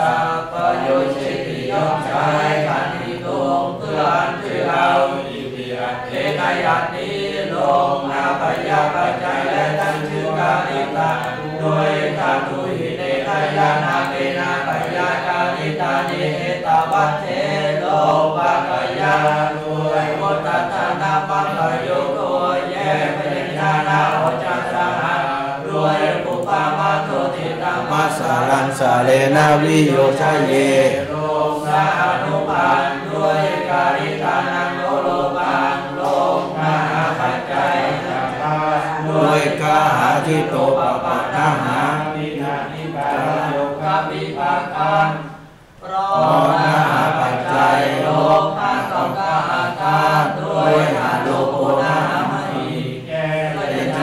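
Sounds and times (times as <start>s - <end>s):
person chanting monotone: 0.0s - 54.0s
man chanting: 24.4s - 35.0s, 38.5s - 45.0s.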